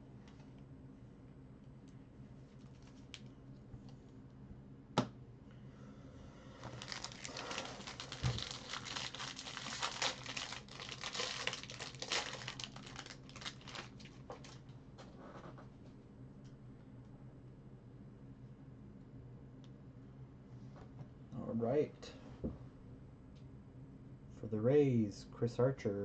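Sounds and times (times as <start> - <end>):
foil wrapper crinkling and tearing: 6.7 - 14.6.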